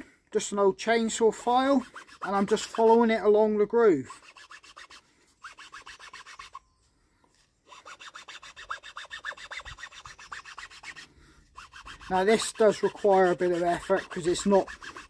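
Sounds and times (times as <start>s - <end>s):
file rasping on wood: 1.8s - 2.9s, 4.1s - 6.6s, 7.7s - 15.0s.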